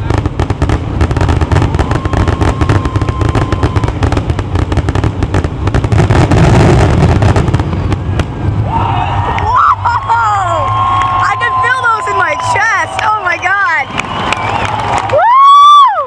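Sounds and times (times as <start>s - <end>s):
fireworks bangs and crackling: 0.0s - 15.6s
thin whistling tone: 13.6s - 14.8s.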